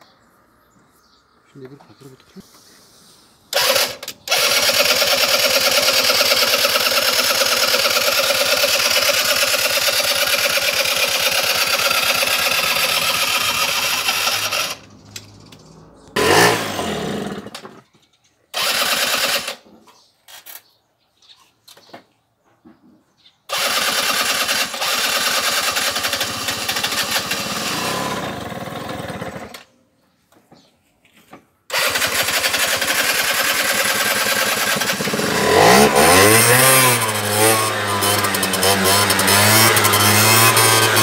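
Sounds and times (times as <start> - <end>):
scooter engine starter turning over: 3.5 - 15.6, 16.2 - 17.8, 18.5 - 19.7, 23.5 - 29.7, 31.7 - 41.0.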